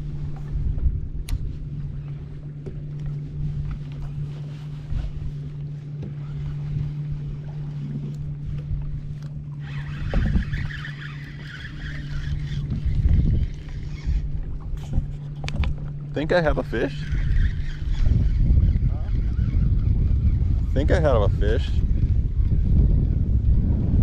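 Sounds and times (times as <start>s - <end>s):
steady low hum: 0.0s - 24.0s
wind buffeting microphone: 0.0s - 24.0s
higher whirring: 5.5s - 24.0s.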